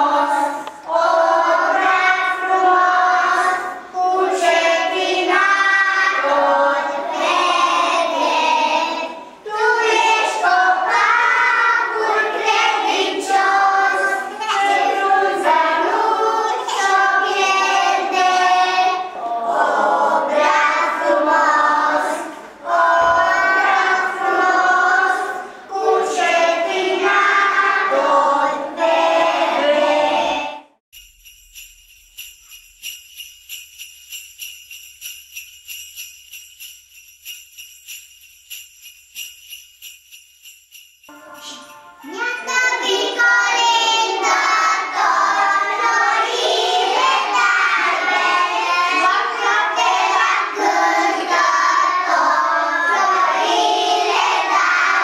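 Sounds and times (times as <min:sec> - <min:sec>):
children singing: 0:00.0 - 0:30.7, 0:41.1 - 0:55.0
small bells shaking: 0:30.9 - 0:42.9.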